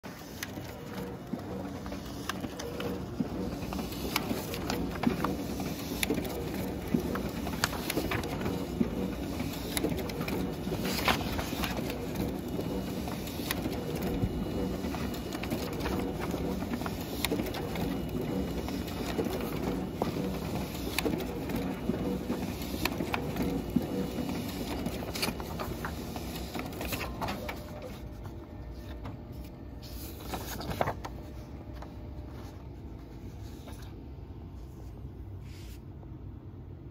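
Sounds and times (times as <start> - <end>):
laser printer humming: 0.1 - 30.2
light clicks and paper sounds: 24.4 - 34.0.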